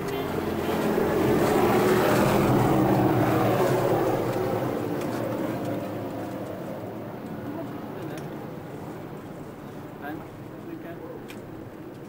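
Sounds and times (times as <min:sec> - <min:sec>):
machine engine passing by: 0:00.0 - 0:08.3.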